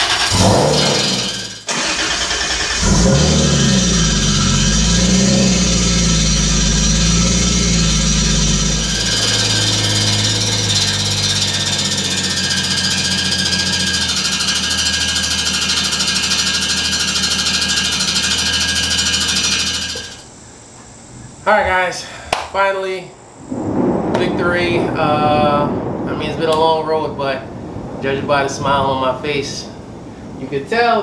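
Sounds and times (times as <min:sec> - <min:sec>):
clanking rubbing noise: 0:00.0 - 0:01.7
car engine idling: 0:00.0 - 0:21.6.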